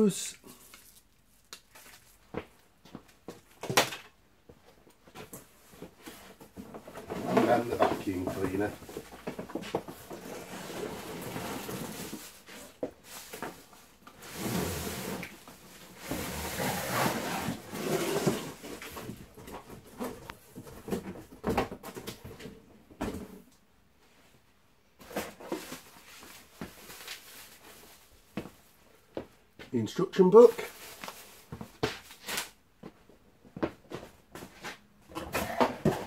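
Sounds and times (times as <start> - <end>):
papers rustling: 0.5 - 4.0
cardboard and packing scraping: 5.8 - 22.2, 30.6 - 32.4, 34.6 - 36.0.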